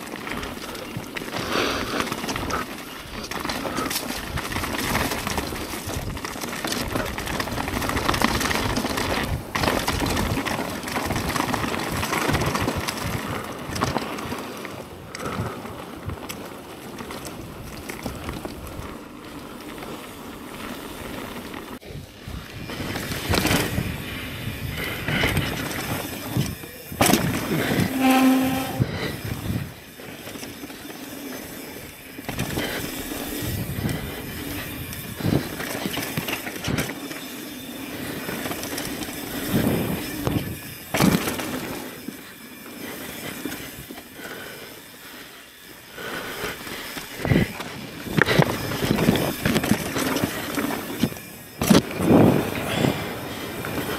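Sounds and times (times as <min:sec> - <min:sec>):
bike knocking and rattling: 0:00.0 - 0:27.8, 0:29.8 - 0:44.6, 0:45.7 - 0:53.9
bike tyres rushing on dirt: 0:00.0 - 0:28.0, 0:29.0 - 0:53.9
brief pitched squeal: 0:27.6 - 0:29.0.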